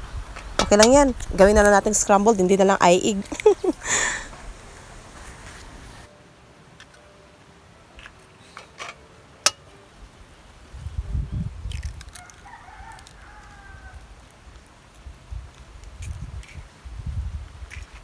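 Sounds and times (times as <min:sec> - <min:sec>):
rooster crowing: 0:12.2 - 0:14.1.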